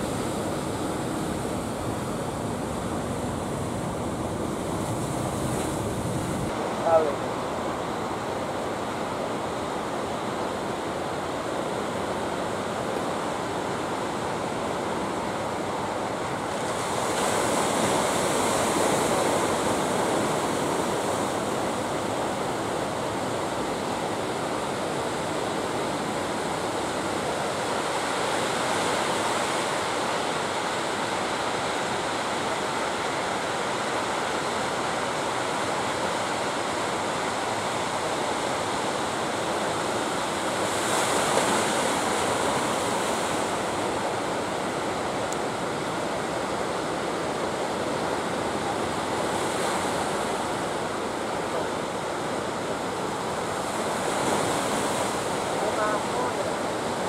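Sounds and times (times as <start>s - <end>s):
ocean surf crashing: 0.0s - 57.0s.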